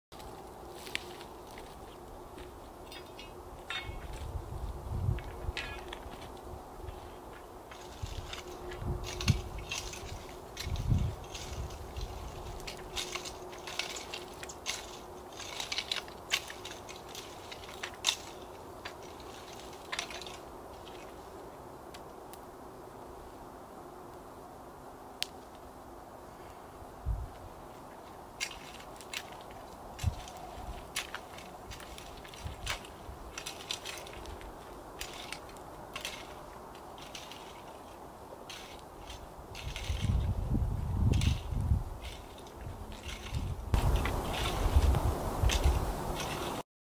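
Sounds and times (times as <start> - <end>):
rake scraping through dirt: 5.0 - 21.2, 28.4 - 46.6.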